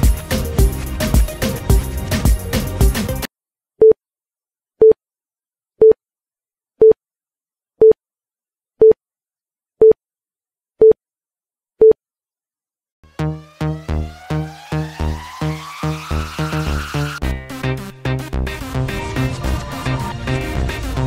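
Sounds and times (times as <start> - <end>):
background music with a beat: 0.0 - 3.3, 13.1 - 21.0.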